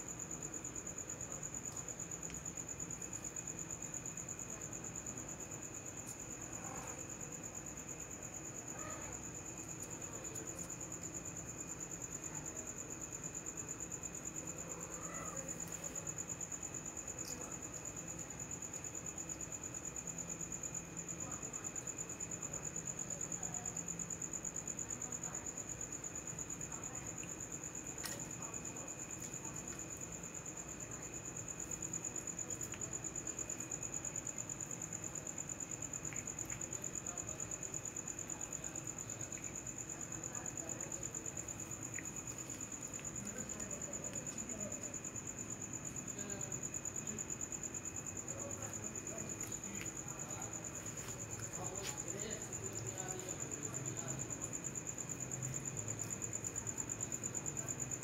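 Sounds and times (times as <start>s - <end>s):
crickets trilling: 0.0s - 58.0s.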